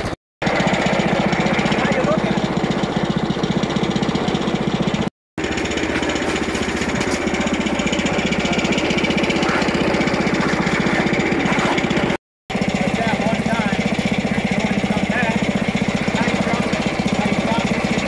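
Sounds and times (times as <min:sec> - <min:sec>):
sawmill gasoline engine running: 0:00.0 - 0:18.0.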